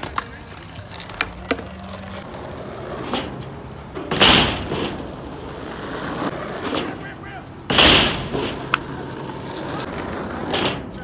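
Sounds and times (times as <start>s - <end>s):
skateboard clacks: 0.0s - 11.0s
skateboard wheels rolling on asphalt: 0.0s - 11.0s.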